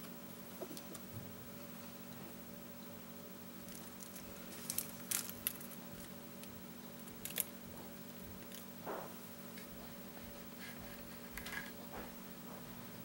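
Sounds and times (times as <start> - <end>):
faint steady hum: 0.0 - 13.0
foil packet crinkling: 3.6 - 7.6.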